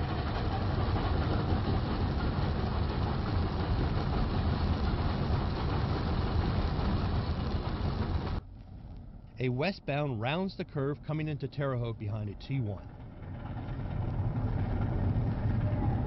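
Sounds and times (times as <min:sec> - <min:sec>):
steam train passing fast: 0:00.0 - 0:08.4.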